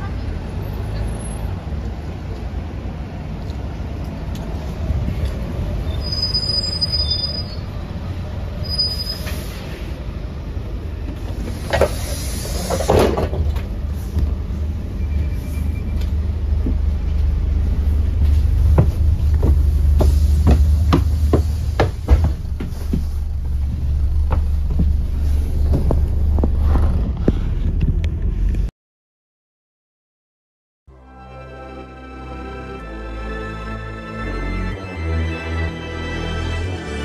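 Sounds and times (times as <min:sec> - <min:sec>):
bus engine low rumble: 0:00.0 - 0:28.7
bus doors opening rush: 0:00.4 - 0:28.7
brake squeal: 0:05.2 - 0:10.0, 0:14.5 - 0:16.5
footstep knocks boarding: 0:18.7 - 0:23.1.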